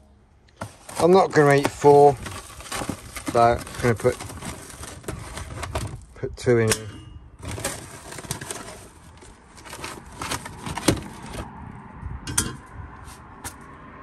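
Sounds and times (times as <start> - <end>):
cardboard box rustling: 0.6 - 6.1, 7.4 - 11.5.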